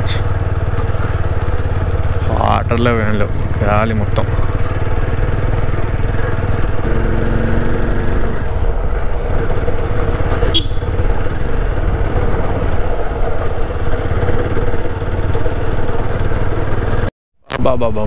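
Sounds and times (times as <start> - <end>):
motorcycle engine rumble: 0.0 - 17.8.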